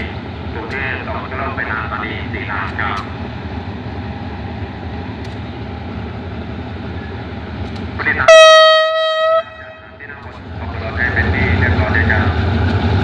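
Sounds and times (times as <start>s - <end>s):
diesel locomotive idling: 0.0s - 13.0s
locomotive horn blast: 8.1s - 10.0s.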